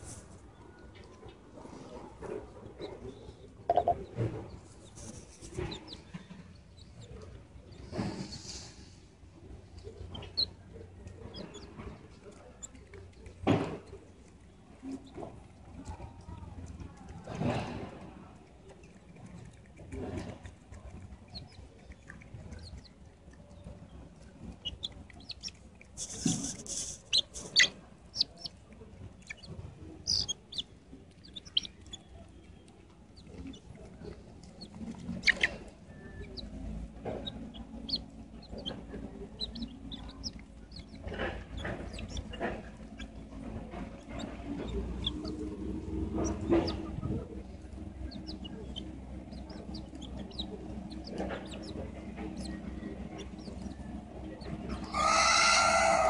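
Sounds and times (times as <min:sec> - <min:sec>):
chickens clucking and calling: 0:00.9 - 0:16.1, 0:17.7 - 0:56.0
beaks clicking on grain: 0:09.8 - 0:17.4, 0:18.0 - 0:53.7.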